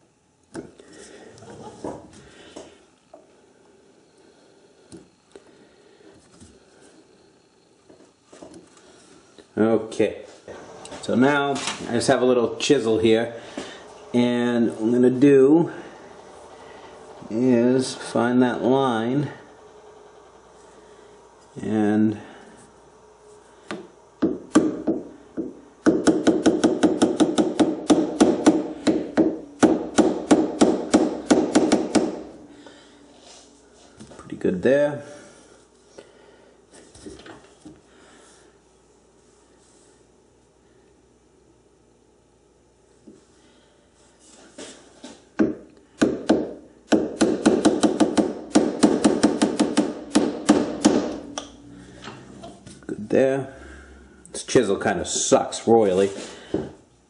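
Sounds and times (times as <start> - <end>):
hammer striking chisel on metal: 24.2 - 32.2, 45.4 - 51.2.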